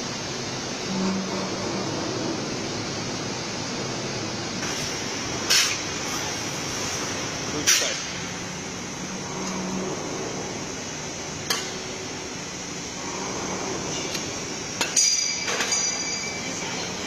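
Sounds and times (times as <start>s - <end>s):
factory machinery hum: 0.0s - 17.0s
sharp metallic clanks: 14.8s - 16.4s.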